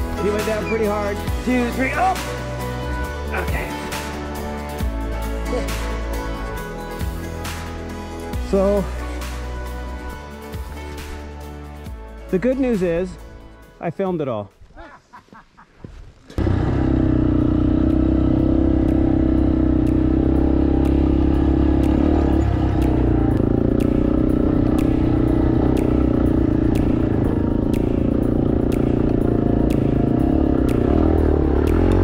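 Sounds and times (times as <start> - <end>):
motorcycle engine running: 16.3 - 32.0.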